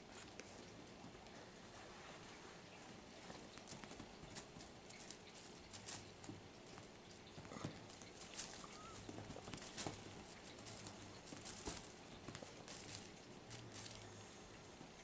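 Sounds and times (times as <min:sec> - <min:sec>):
kitten paws tapping on bedspread: 0:02.9 - 0:14.0.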